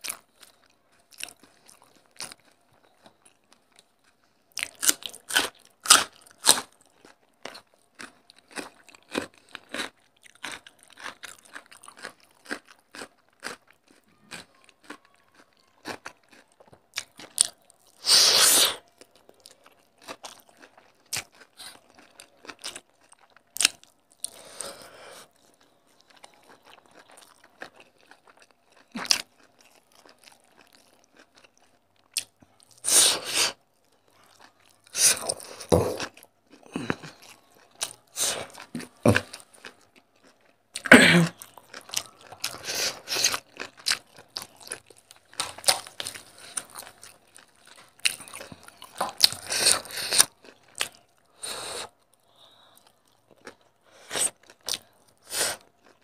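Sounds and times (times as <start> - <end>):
wet chewing: 33.4 - 56.0.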